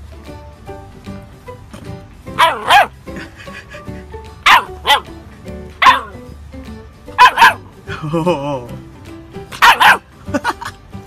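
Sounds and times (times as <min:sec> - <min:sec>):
background music: 0:00.0 - 0:11.0
dog barking: 0:02.4 - 0:03.0, 0:04.4 - 0:05.1, 0:05.8 - 0:06.2, 0:07.2 - 0:07.6, 0:09.6 - 0:10.1.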